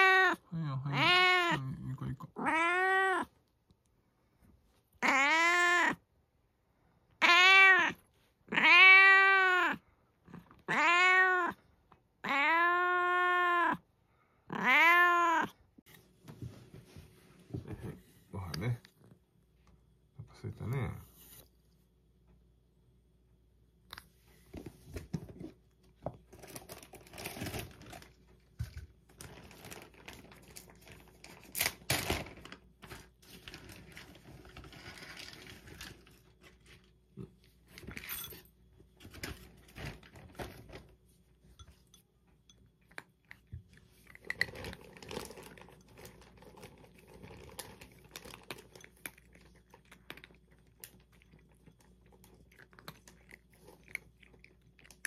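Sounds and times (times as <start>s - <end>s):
cat chewing food: 42.7s - 55.0s.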